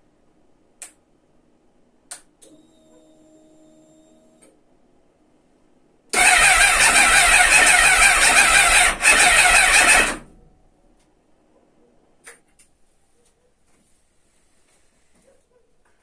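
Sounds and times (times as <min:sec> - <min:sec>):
faint steady hum: 0:00.0 - 0:06.2, 0:10.2 - 0:16.0
motorcycle starter motor cranking: 0:06.2 - 0:10.3.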